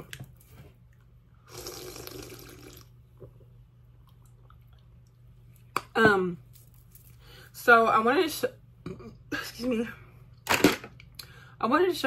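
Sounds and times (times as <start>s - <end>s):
soda fizzing: 1.5s - 2.9s.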